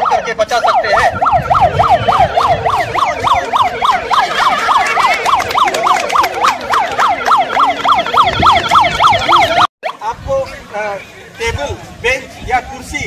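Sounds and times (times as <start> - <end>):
electronic siren yelping: 0.0 - 10.0.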